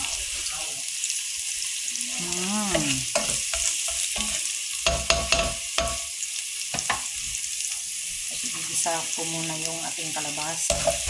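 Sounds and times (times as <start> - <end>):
onion sizzling in hot oil: 0.0 - 11.0
spoon scraping and knocking pot: 3.1 - 6.1, 10.7 - 11.0.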